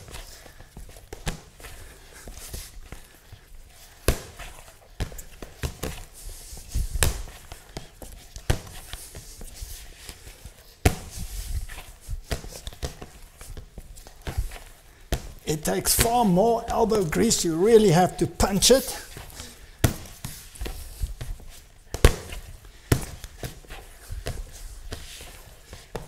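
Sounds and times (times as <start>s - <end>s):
dough being kneaded and punched: 3.9s - 17.1s.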